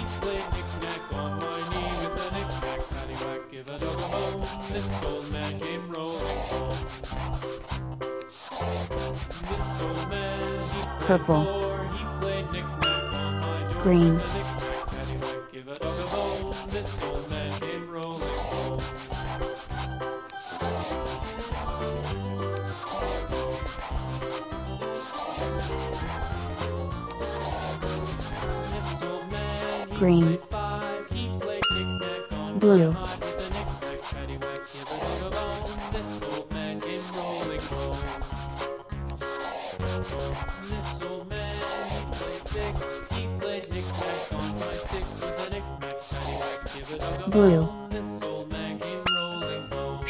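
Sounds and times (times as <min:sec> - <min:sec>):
crayon scribbling on paper: 0:00.0 - 0:11.6, 0:12.8 - 0:30.4, 0:31.6 - 0:47.7, 0:49.1 - 0:49.8
instrumental tune with bass line: 0:10.2 - 0:15.5, 0:18.9 - 0:33.9, 0:49.0 - 0:50.0.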